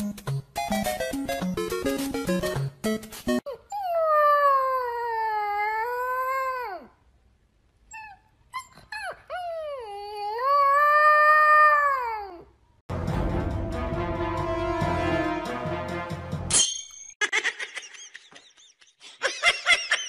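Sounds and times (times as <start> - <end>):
puppy howling: 3.7 - 6.9, 9.0 - 12.4
puppy whimpering yips: 7.9 - 10.8.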